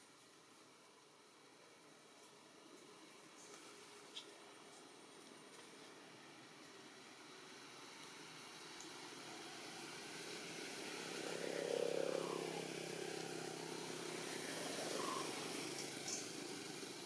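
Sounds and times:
vehicle engine passing: 0:09.1 - 0:17.0.

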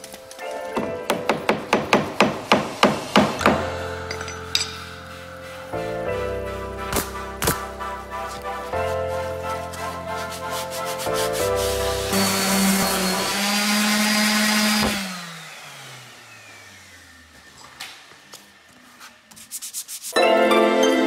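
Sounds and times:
music: 0:00.0 - 0:13.3, 0:20.1 - 0:21.0
sanding hiss: 0:02.5 - 0:17.5, 0:18.4 - 0:20.2
orbital sander whining: 0:11.4 - 0:18.8.

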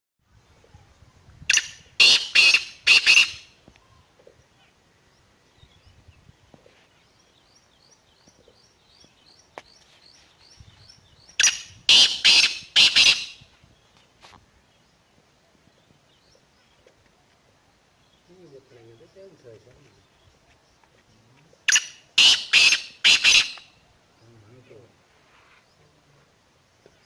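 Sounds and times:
francolin calling: 0:01.4 - 0:04.8, 0:10.4 - 0:13.5, 0:21.5 - 0:23.9.

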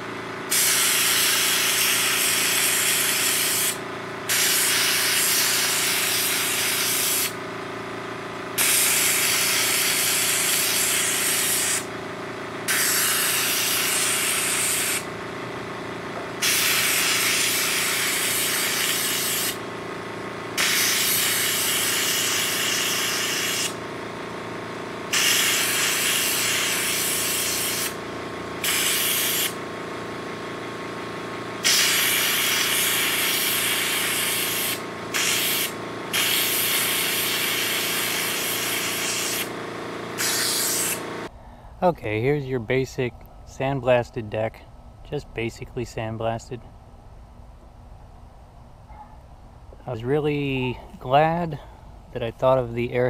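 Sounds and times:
steady hum: 0:00.0 - 0:53.0
sandblaster gun hissing: 0:00.5 - 0:07.4, 0:08.6 - 0:11.9, 0:12.7 - 0:15.1, 0:16.4 - 0:19.7, 0:20.6 - 0:23.8, 0:25.1 - 0:28.0, 0:28.6 - 0:29.6, 0:31.6 - 0:41.3.

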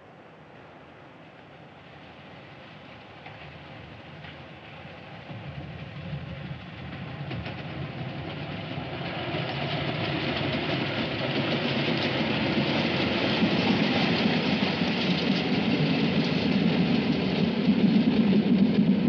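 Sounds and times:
freight train rumbling and rattling: 0:00.0 - 0:19.0.

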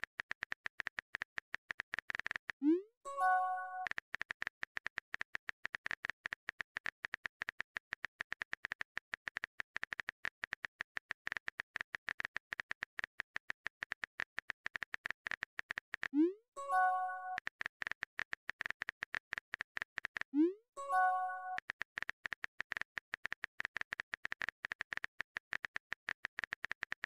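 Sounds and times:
keyboard typing clicks: 0:03.2 - 0:27.0.

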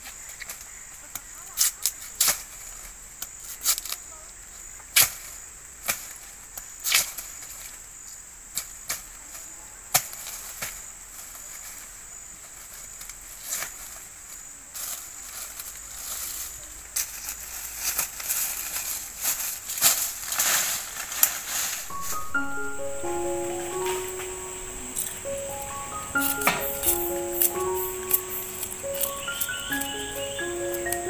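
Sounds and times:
high-pitched insect drone: 0:21.9 - 0:31.0.

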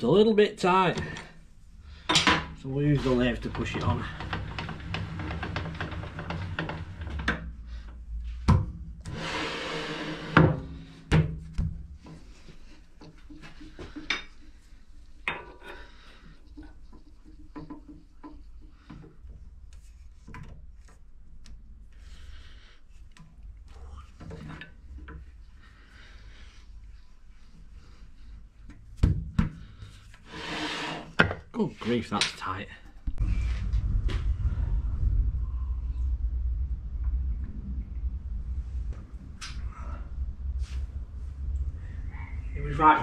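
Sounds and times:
metal scraping rub: 0:09.0 - 0:11.0, 0:30.2 - 0:32.0.

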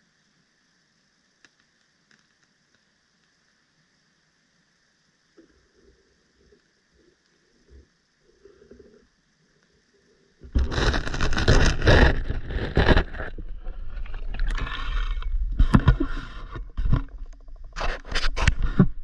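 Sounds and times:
rubbing and knocking on a camera case: 0:10.5 - 0:14.6, 0:15.5 - 0:19.0
water sloshing: 0:10.6 - 0:17.6.

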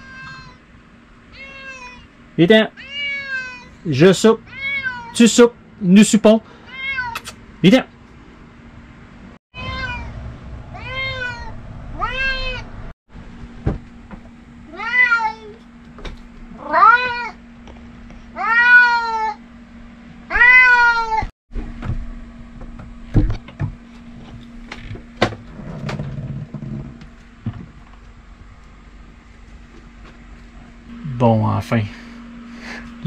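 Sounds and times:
cat meowing: 0:00.0 - 0:00.6, 0:01.3 - 0:02.1, 0:02.8 - 0:03.8, 0:04.5 - 0:05.2, 0:06.6 - 0:07.3, 0:09.6 - 0:12.7, 0:14.7 - 0:15.6, 0:16.6 - 0:17.4, 0:18.4 - 0:19.4, 0:20.3 - 0:21.3.

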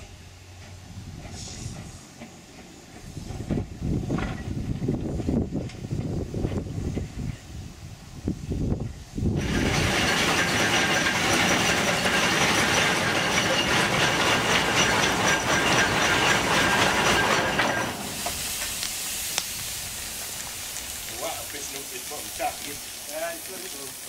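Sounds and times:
steam engine hissing and clattering: 0:00.0 - 0:24.0.

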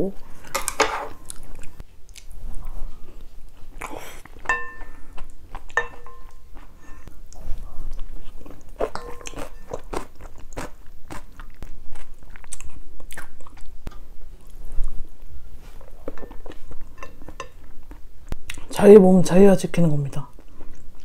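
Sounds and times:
wet chewing with crunchy clicks: 0:01.2 - 0:02.4, 0:03.0 - 0:15.0, 0:16.1 - 0:18.7, 0:20.4 - 0:21.0
utensils clinking against bowl: 0:04.5 - 0:05.0, 0:05.8 - 0:06.4, 0:08.8 - 0:09.8.

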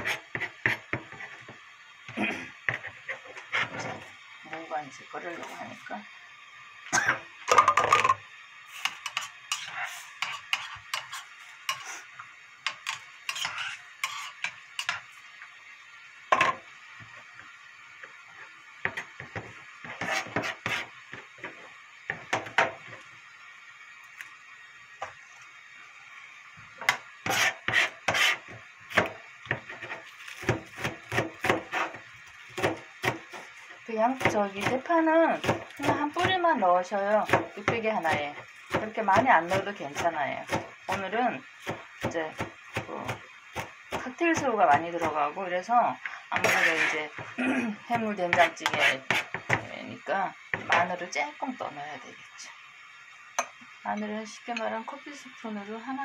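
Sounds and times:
knife chopping on plastic board: 0:30.4 - 0:31.9.

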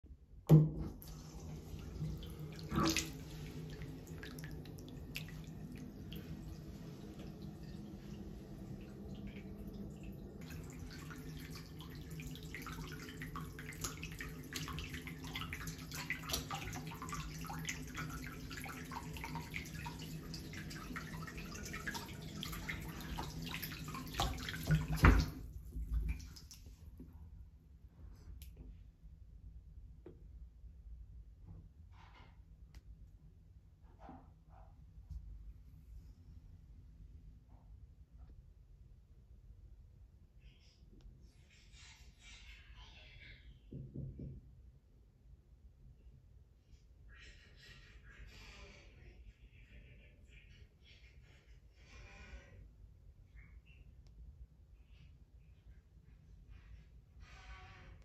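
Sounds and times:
tap water running into bathtub: 0:00.5 - 0:26.8
water splashes and drips: 0:00.6 - 0:26.8.

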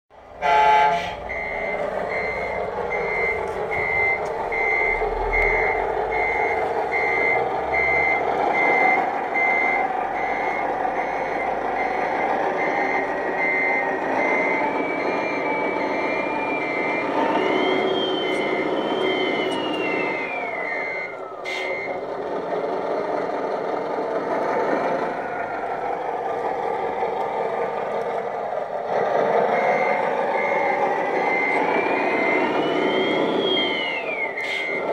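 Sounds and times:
engine drone: 0:00.2 - 0:34.9
reversing beeper: 0:00.4 - 0:22.1, 0:28.8 - 0:34.9.

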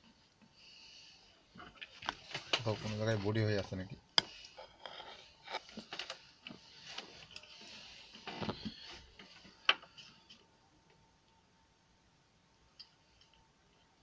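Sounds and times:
circuit board and wires handled: 0:01.6 - 0:10.4.

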